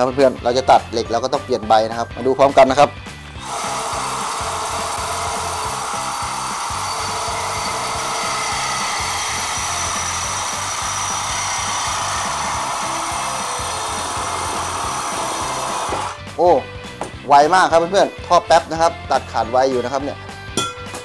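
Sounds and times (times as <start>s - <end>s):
reciprocating saw cutting metal pipe: 3.4s - 16.2s.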